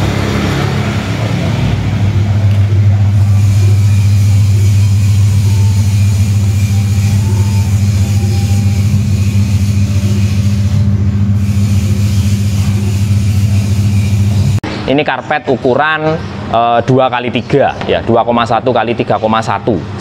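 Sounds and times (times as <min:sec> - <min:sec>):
low machine hum: 0:00.0 - 0:14.9.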